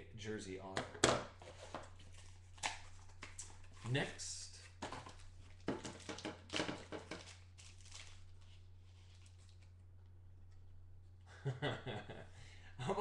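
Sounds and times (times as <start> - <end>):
low steady hum: 0.0 - 13.0
cards clicking and rustling: 4.7 - 8.2.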